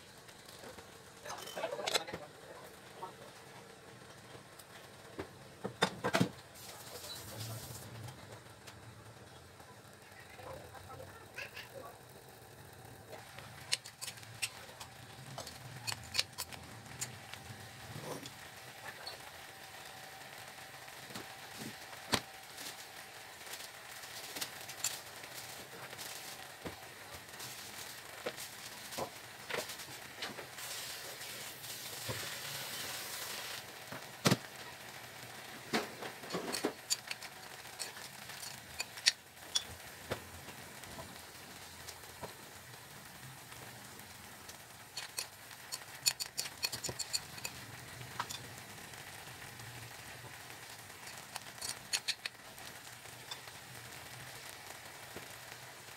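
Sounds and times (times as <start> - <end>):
food sizzling in a pot: 0.0 - 55.9
utensil clinking against pot: 45.0 - 47.6.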